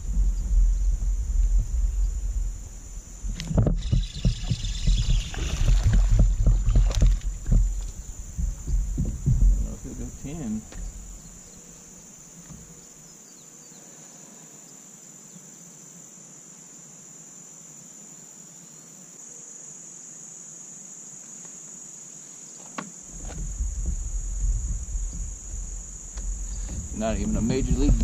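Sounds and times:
rumbling and bumps in kayak: 0.0 - 12.9, 23.0 - 28.0
insects chorus: 0.0 - 28.0
knock in kayak: 3.3 - 11.4, 22.8 - 28.0.

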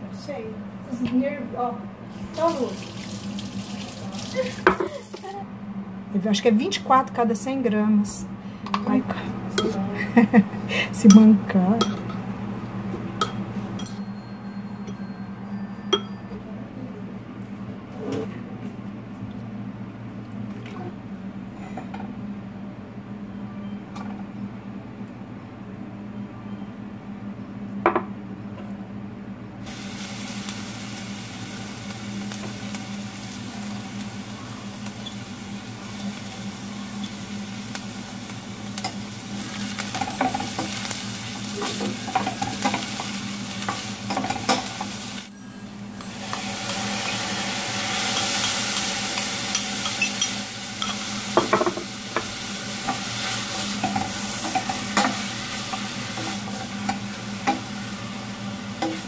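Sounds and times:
steady low hum: 0.0 - 2.7, 4.3 - 59.0
food sizzling in oil: 2.1 - 5.3, 29.6 - 59.0.

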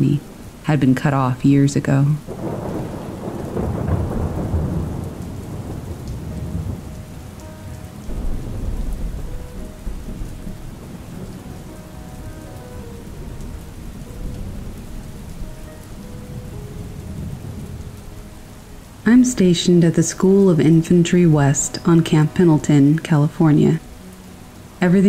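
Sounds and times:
steady rain falling: 0.0 - 25.0
rolling thunder: 2.2 - 19.0.

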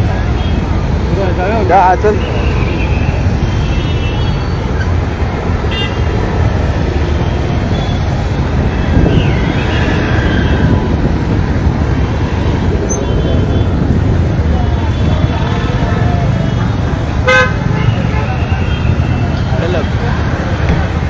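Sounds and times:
low rumble of engines: 0.0 - 21.0
car horn toot: 17.2 - 18.8.

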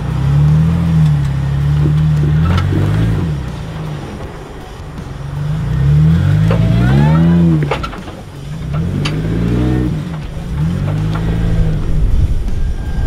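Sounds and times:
engine revving: 0.0 - 13.0.

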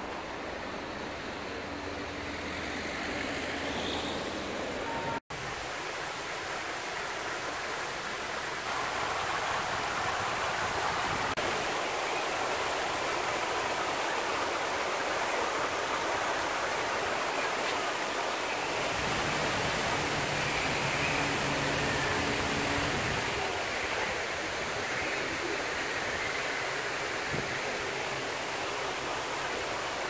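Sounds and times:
fountain water splashing: 5.4 - 30.0.

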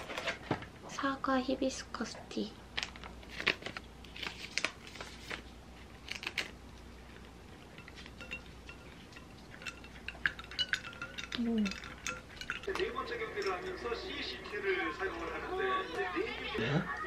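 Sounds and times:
paper packet rustling: 2.8 - 6.6
spoon clinking ice in glass: 7.7 - 16.0.

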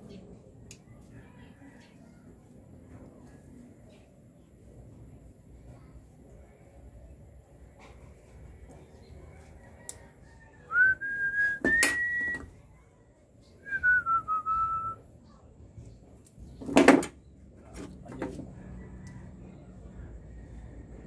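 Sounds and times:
person whistling: 10.7 - 12.5, 13.6 - 15.0.

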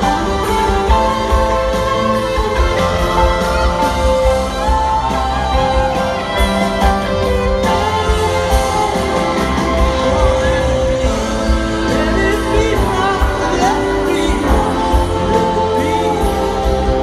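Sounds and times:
electric guitar solo: 0.0 - 17.0
live rock band playing ballad: 0.0 - 17.0.

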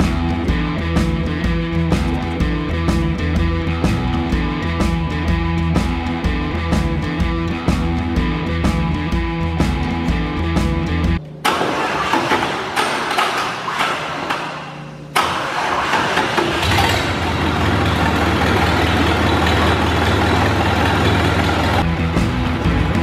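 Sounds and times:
rock music: 0.0 - 11.2, 17.6 - 23.0
truck engine cranking and running: 11.4 - 23.0.

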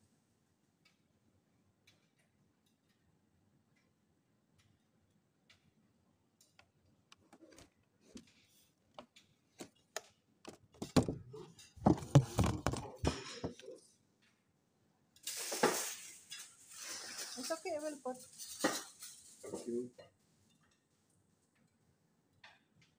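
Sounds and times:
knocks and rustling: 10.5 - 13.7.

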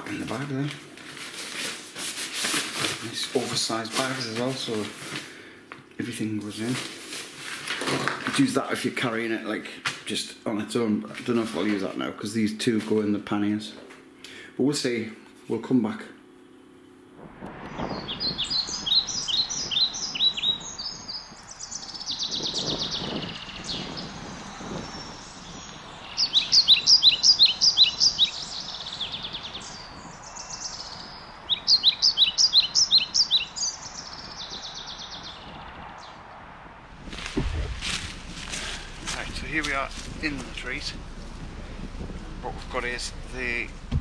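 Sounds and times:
faint outdoor hiss: 0.0 - 44.0
songbirds chirping: 3.0 - 7.1, 8.2 - 36.7, 37.4 - 44.0
soft bird trills: 16.3 - 36.3.

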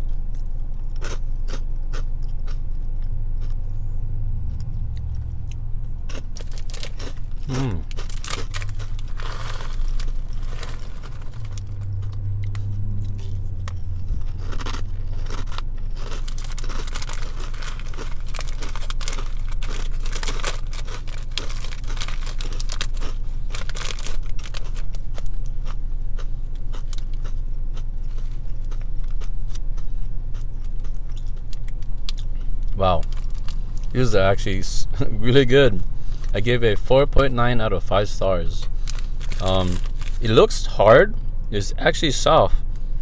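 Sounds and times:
crunchy snack being chewed: 0.0 - 3.6, 4.4 - 34.1, 38.6 - 40.4
foil bag crinkling: 6.4 - 11.8, 14.3 - 25.0, 32.8 - 34.0, 38.7 - 40.4.

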